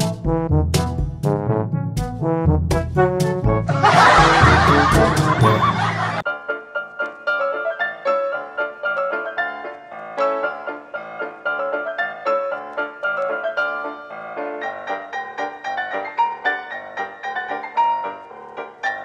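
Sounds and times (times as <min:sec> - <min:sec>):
light piano music: 0:00.0 - 0:19.0.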